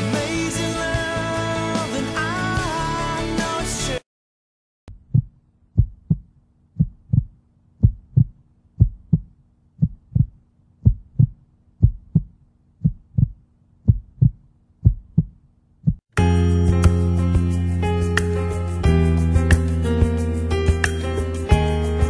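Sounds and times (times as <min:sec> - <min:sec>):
heartbeat double thumps: 0:04.9 - 0:16.1.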